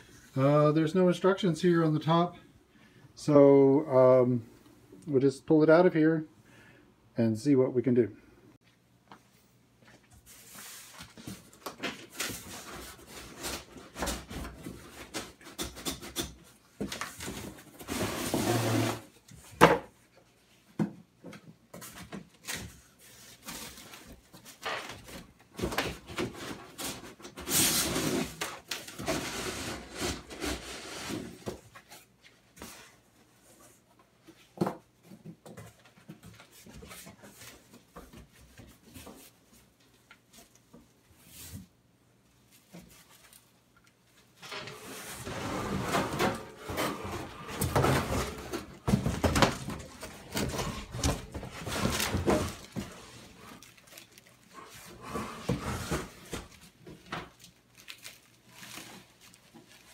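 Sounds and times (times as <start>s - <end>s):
cardboard scraping: 17.3s - 19.1s, 26.1s - 31.8s, 44.6s - 57.1s
plastic wrap crinkling: 50.0s - 54.8s, 56.4s - 59.9s.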